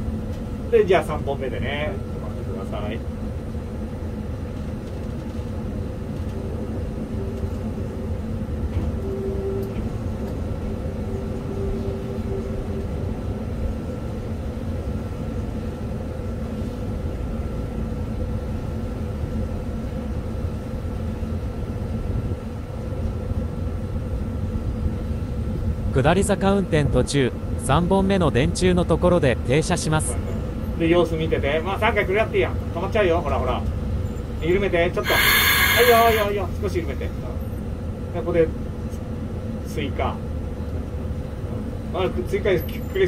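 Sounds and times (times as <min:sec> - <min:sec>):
constant equipment hum: 0:00.0 - 0:43.0
low rumble of train rolling: 0:00.0 - 0:43.0
faint wavering tone: 0:08.9 - 0:13.6.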